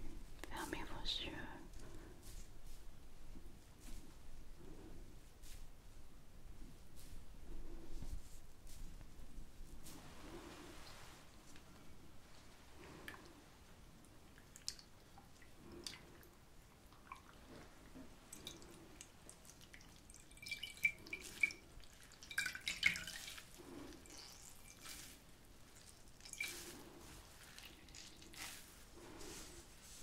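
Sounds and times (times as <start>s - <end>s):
water dripping and trickling: 14.2s - 28.6s
wet cloth squeezed over water: 18.3s - 28.8s.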